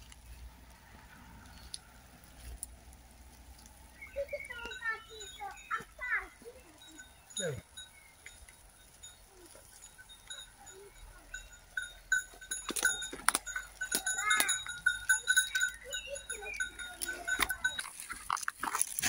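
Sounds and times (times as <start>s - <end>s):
livestock bells ringing: 4.0s - 18.4s.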